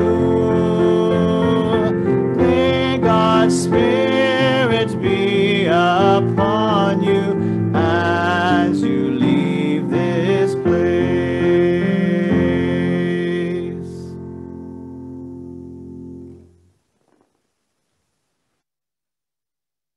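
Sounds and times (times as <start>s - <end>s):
person singing: 0.0s - 14.4s.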